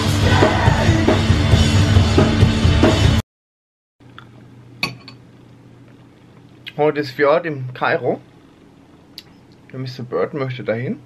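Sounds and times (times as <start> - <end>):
loud rock music: 0.0 - 3.2
room hum: 4.0 - 11.0.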